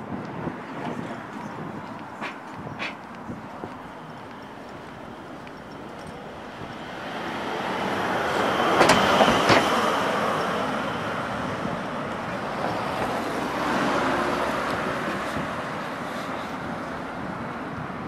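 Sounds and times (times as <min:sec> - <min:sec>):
cars passing: 0:00.0 - 0:18.0.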